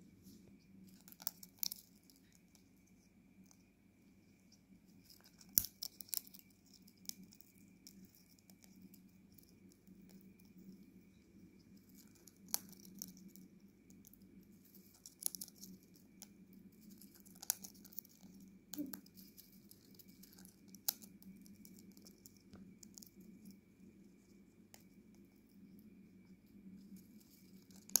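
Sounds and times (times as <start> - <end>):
rustling husks in a bowl: 0.0 - 28.0
parrot cracking seeds: 0.9 - 2.6, 5.0 - 10.5, 11.7 - 23.6, 26.9 - 28.0.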